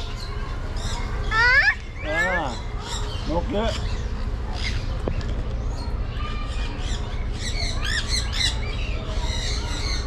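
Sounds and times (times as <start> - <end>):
parrots squawking: 1.3 - 3.9.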